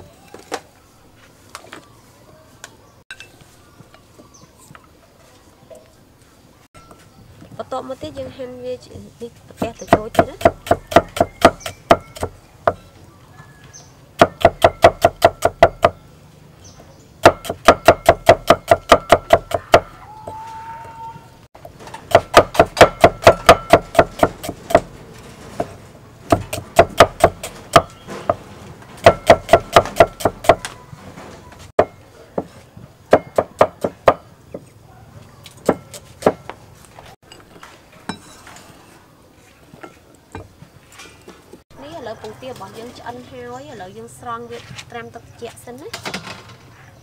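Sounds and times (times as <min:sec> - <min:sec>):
cleaver knocking on wooden block: 0:09.6 - 0:12.8.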